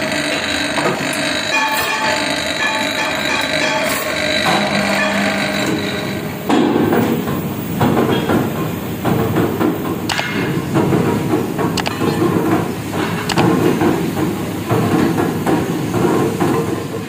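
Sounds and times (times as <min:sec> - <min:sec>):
power press running: 0:00.0 - 0:17.0
steel discs clanking: 0:00.0 - 0:17.0
sharp metal clank: 0:01.5 - 0:08.4.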